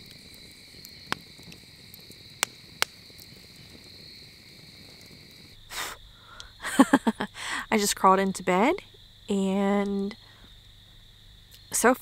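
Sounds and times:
sharp fire pops: 0.0 - 7.1
campfire logs crackling: 0.0 - 11.8
night insects chirring: 0.0 - 12.0.

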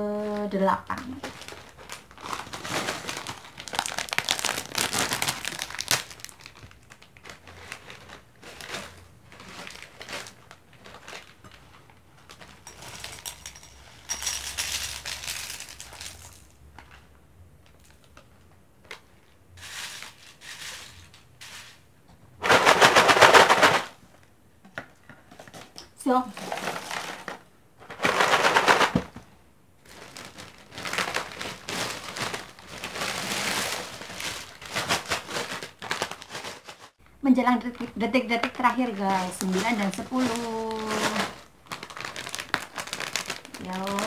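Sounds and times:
plastic packaging crinkling: 0.3 - 17.0, 26.3 - 29.2, 29.8 - 37.0, 37.6 - 44.0
snack pieces pouring into bowl: 1.4 - 9.0, 12.4 - 16.5, 27.9 - 29.0, 39.4 - 44.0.

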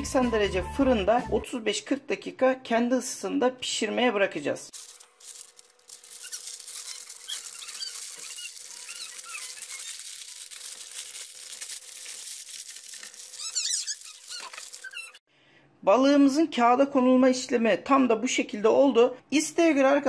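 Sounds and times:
baking paper rustling and crinkling: 4.7 - 15.2
paper squeaks: 4.8 - 15.2.

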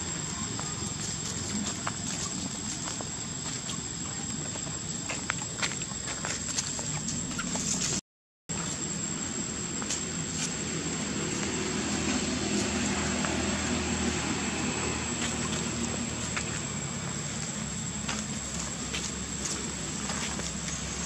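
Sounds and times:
distant engine droning: 8.6 - 21.0.

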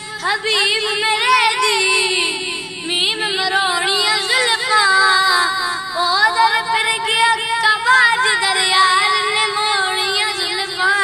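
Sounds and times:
boy singing devotional song: 0.0 - 11.0.

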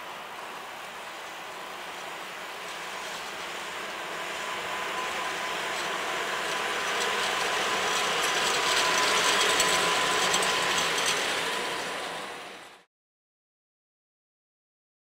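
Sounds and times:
electric locomotive whine: 0.0 - 12.9
rapid clicking of wheels: 5.6 - 12.0.

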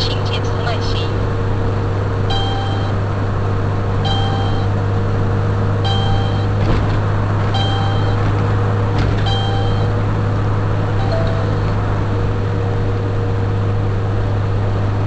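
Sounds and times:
car cabin road noise: 0.0 - 15.0
short electronic beep: 2.3 - 3.0, 4.0 - 4.7, 5.8 - 6.6, 7.6 - 8.2, 9.3 - 9.9, 11.0 - 11.8.

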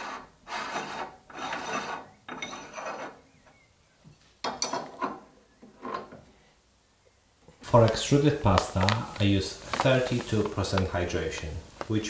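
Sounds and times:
metal threads rasping: 0.0 - 3.3.

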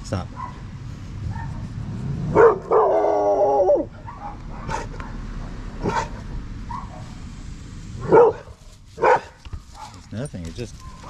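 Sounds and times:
dog barking sharply: 4.1 - 4.9, 5.8 - 7.0, 8.0 - 10.0.

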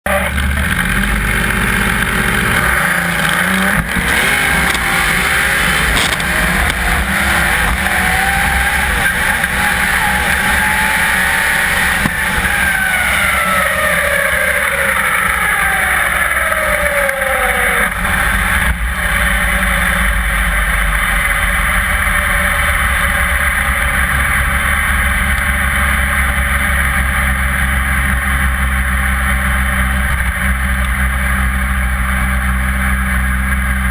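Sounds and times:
drag car engine accelerating: 0.0 - 33.9.

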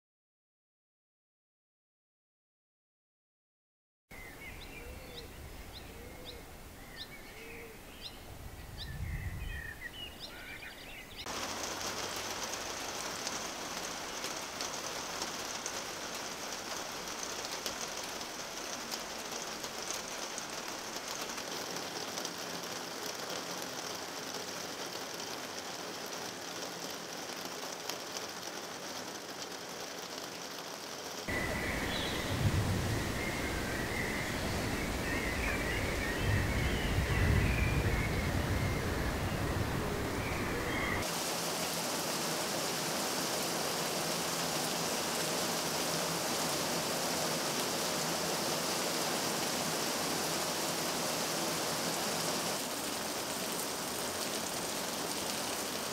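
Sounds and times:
birds chirping: 4.1 - 16.8, 31.3 - 41.1
heavy rain on garden and deck: 9.8 - 55.9
low rumble: 31.3 - 40.9.

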